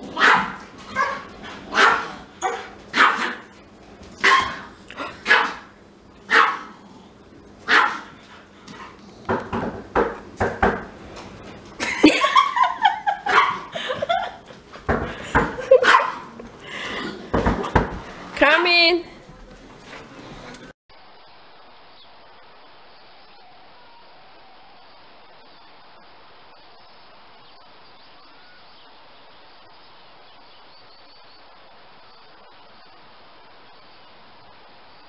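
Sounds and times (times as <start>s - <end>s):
dogs barking: 0.0s - 6.8s, 7.6s - 10.3s, 12.2s - 14.5s, 15.2s - 17.9s.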